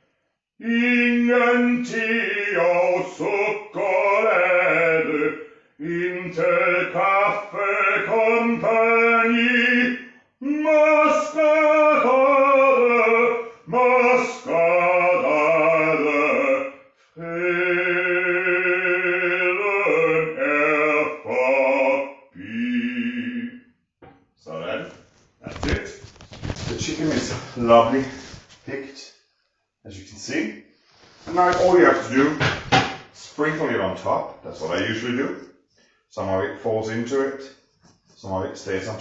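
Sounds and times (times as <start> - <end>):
man singing operatic style: 0.6 - 23.7, 26.6 - 29.2, 31.3 - 32.5, 33.2 - 35.4.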